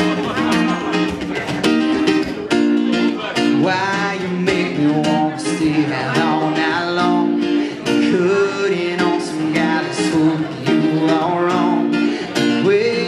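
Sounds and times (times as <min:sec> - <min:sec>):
acoustic guitar strumming: 0:00.0 - 0:13.0
man singing into a microphone: 0:03.2 - 0:13.0.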